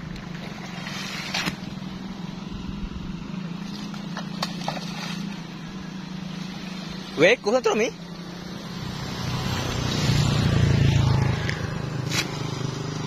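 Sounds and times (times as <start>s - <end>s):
low hum: 0.0s - 7.2s
water splashing and dripping: 3.6s - 7.1s.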